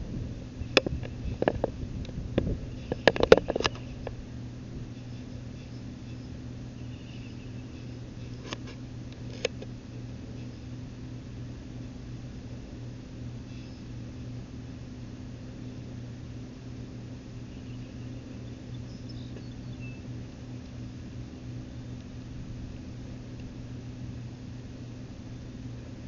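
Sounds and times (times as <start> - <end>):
low mechanical hum: 0.0 - 26.0
faint high chirps: 4.9 - 8.4, 17.5 - 20.1.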